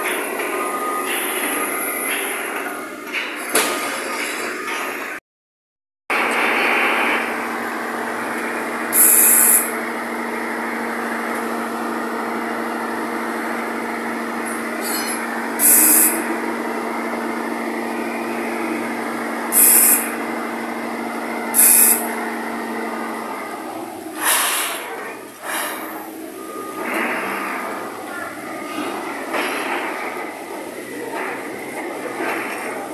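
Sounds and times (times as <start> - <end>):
truck engine droning: 6.1 - 32.9
air hisses: 19.6 - 20.1.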